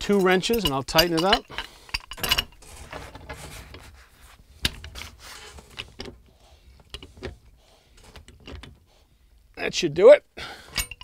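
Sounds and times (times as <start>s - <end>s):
pipe wrench metal clicks: 0.0s - 2.6s, 10.7s - 11.0s.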